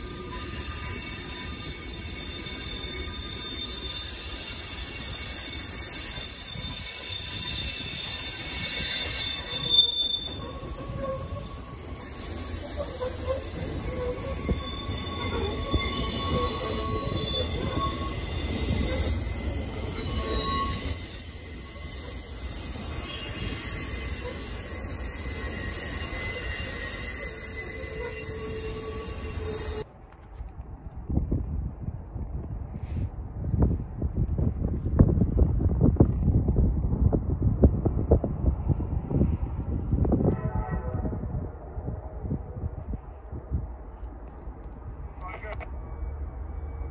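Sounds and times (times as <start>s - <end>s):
steel wheels squealing: 0.0s - 29.9s
train wheels rumbling on rails: 0.0s - 46.9s.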